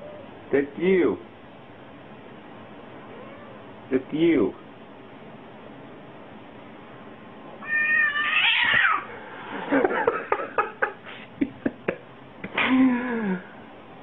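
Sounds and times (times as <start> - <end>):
cat yowling: 3.0 - 3.7, 7.6 - 9.1.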